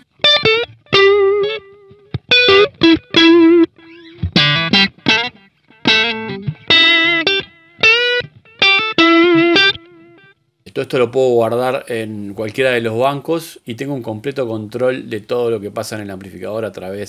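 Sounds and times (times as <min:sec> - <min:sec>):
electric guitar notes with delay: 0:00.1 - 0:10.4.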